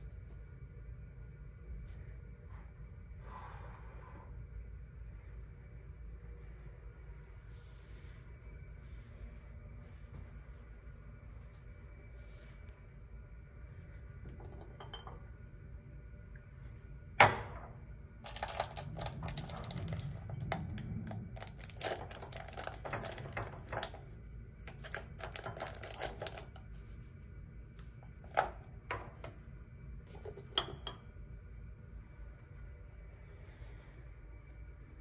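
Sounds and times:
paper packets rustling: 0:18.2 - 0:24.0, 0:24.7 - 0:26.6.

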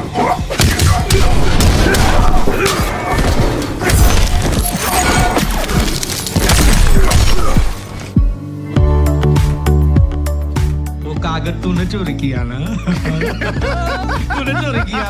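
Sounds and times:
loud action music: 0:00.0 - 0:11.5
punch and thud effects: 0:00.5 - 0:07.8.

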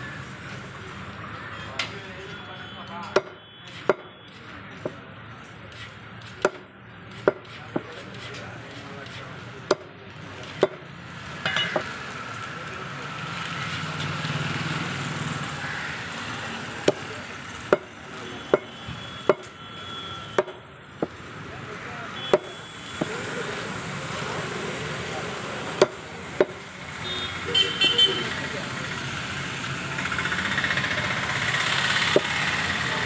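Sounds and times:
cleaver chopping meat and bones: 0:03.0 - 0:05.1, 0:05.7 - 0:10.9, 0:16.5 - 0:19.6, 0:20.3 - 0:21.3, 0:22.2 - 0:23.2, 0:25.6 - 0:26.6, 0:31.8 - 0:32.8.

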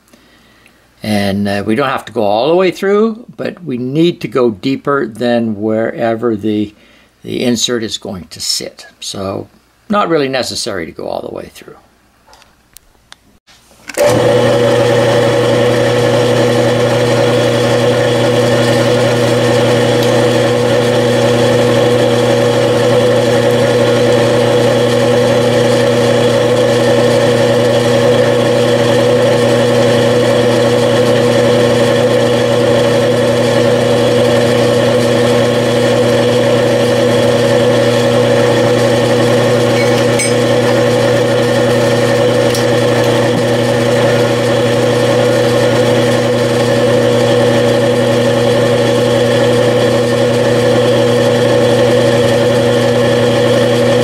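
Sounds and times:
milling machine humming and whining: 0:14.0 - 0:54.0
drill cutting into metal: 0:36.6 - 0:46.7.

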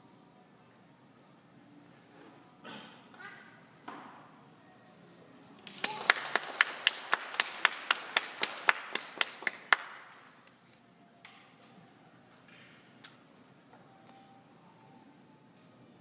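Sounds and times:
close sharp hand claps: 0:05.6 - 0:10.6
crowd applause: 0:05.7 - 0:10.3.

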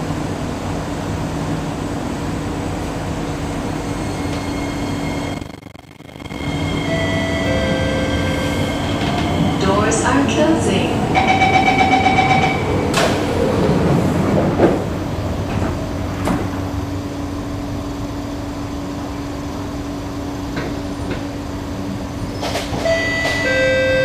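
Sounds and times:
train humming: 0:00.0 - 0:24.0
train door chime: 0:06.7 - 0:09.4, 0:11.1 - 0:12.7, 0:22.8 - 0:24.0
sliding doors shutting: 0:10.9 - 0:16.8.

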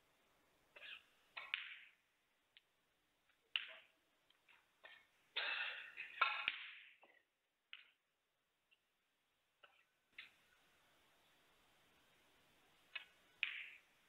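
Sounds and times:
snooker balls clicking: 0:00.7 - 0:05.2, 0:06.1 - 0:08.1, 0:12.8 - 0:14.0.

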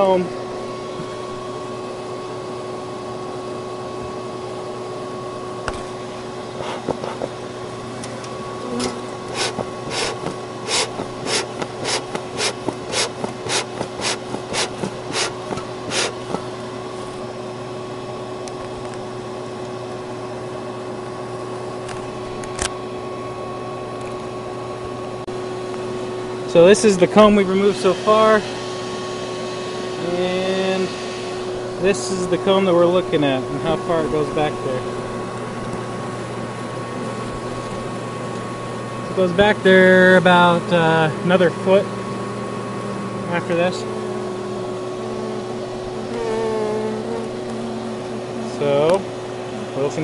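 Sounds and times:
machine hum with whine: 0:00.0 - 0:50.0
short sharp scraping strokes: 0:08.7 - 0:16.4.

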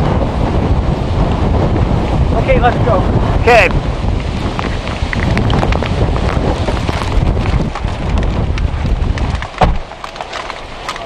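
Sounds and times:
heavy wind buffeting microphone: 0:00.0 - 0:11.0
rain: 0:00.0 - 0:11.0
car door shutting: 0:09.6 - 0:09.9.

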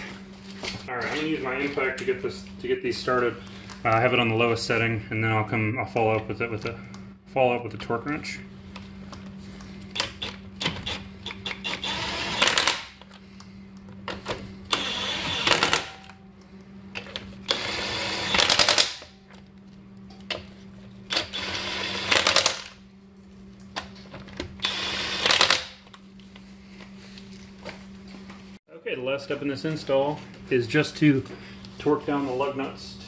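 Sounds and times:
impact wrench hammering lug nuts: 0:14.7 - 0:16.1, 0:17.5 - 0:19.1.

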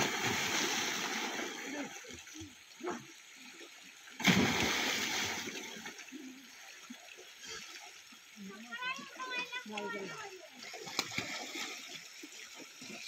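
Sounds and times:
loud water splash: 0:00.0 - 0:01.8, 0:04.2 - 0:05.8
water churning: 0:00.0 - 0:13.0.

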